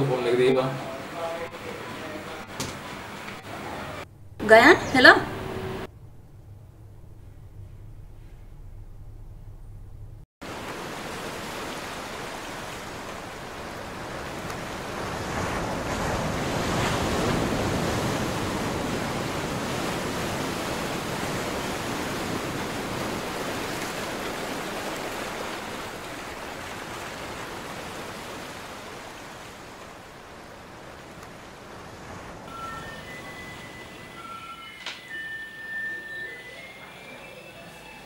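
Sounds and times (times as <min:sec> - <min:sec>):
wind: 0:00.0 - 0:38.0
surf washing onto beach: 0:10.4 - 0:35.2.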